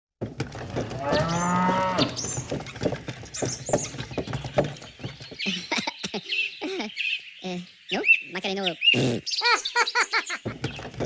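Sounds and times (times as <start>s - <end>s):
birds chirping: 0.3s - 11.0s
cow mooing: 0.9s - 2.2s.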